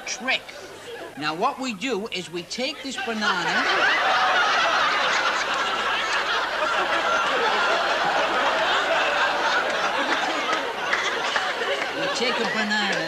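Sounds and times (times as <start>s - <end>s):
studio audience laughing: 3.0s - 13.0s.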